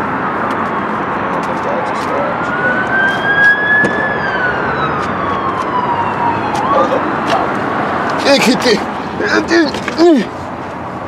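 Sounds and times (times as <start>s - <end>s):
traffic noise: 0.0s - 11.0s
siren wailing: 2.2s - 8.0s.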